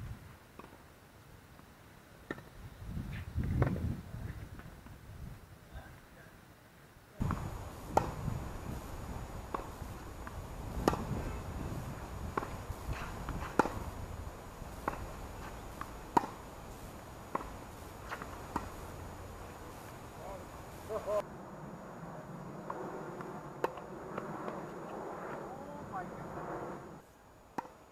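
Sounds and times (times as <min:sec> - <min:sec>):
ball bouncing on hard court: 0:07.2 - 0:08.2, 0:09.5 - 0:11.3, 0:12.2 - 0:13.9, 0:14.7 - 0:16.4, 0:17.3 - 0:18.9
rackets striking tennis ball: 0:07.2 - 0:14.0, 0:14.6 - 0:20.2, 0:22.6 - 0:25.0, 0:27.5 - 0:27.9
low outdoor rumble: 0:07.2 - 0:27.2.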